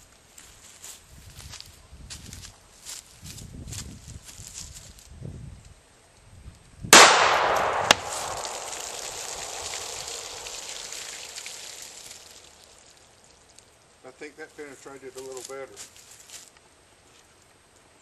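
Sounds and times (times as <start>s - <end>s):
gunshot with long echo: 6.9s - 11.5s
sharp crack: 6.9s - 13.6s.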